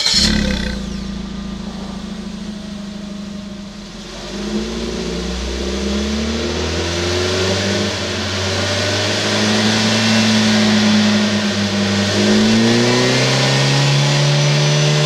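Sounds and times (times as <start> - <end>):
car engine idling and revving: 0.0 - 15.0.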